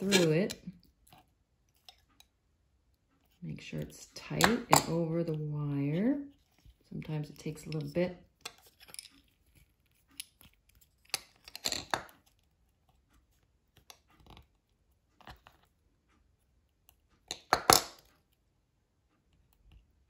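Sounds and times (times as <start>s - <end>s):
wire scratching and clicking: 0.0s - 2.3s.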